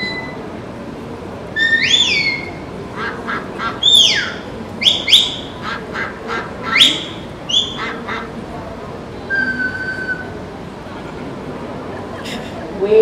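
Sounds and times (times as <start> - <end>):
herding whistle commands: 0.0 - 0.4, 1.6 - 2.6, 3.8 - 5.6, 6.7 - 7.8, 9.3 - 10.4
ducks quacking: 1.6 - 8.5.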